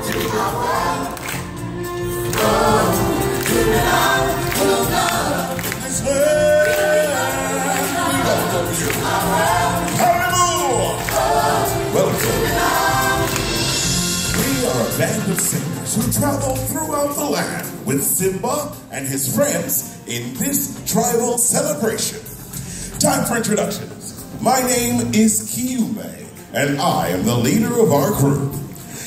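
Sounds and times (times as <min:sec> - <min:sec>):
group singing in echoing theatre: 0:00.0 - 0:16.2
backing music: 0:00.0 - 0:29.0.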